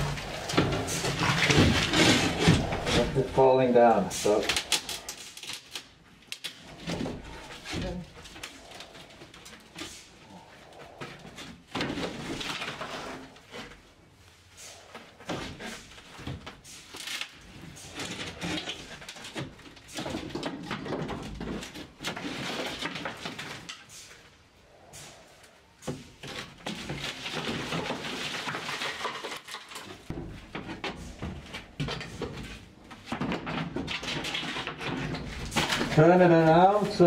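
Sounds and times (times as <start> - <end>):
wood creaking: 0.0 - 13.9
wood scraping: 0.0 - 37.0.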